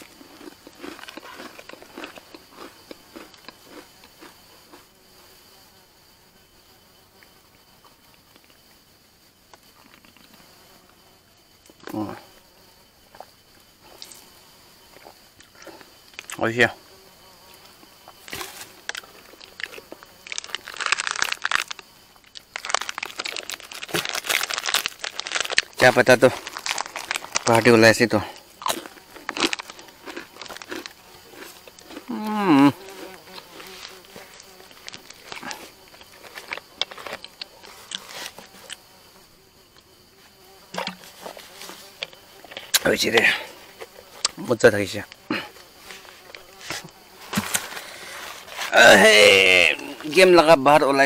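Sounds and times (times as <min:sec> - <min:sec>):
insect buzzing: 0:00.0 - 0:51.0
wrapping crinkling and rustling: 0:20.3 - 0:21.8, 0:22.5 - 0:27.7.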